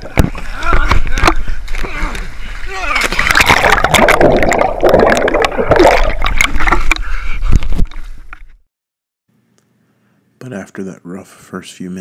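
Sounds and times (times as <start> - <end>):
water splashing and churning: 0.0 - 7.9
underwater bubbling: 3.2 - 7.1.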